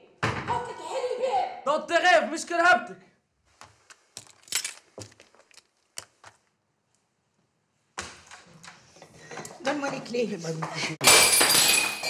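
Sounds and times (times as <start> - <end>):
keys clicking and rattling: 4.2 - 6.1.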